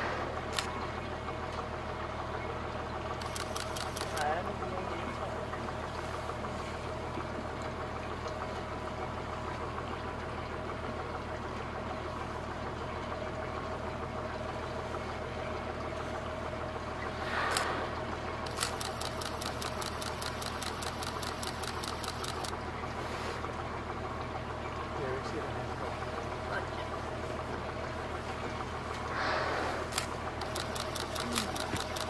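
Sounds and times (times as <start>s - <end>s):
boat engine droning: 0.0s - 32.0s
fast even ticking: 18.5s - 22.5s, 30.4s - 32.0s.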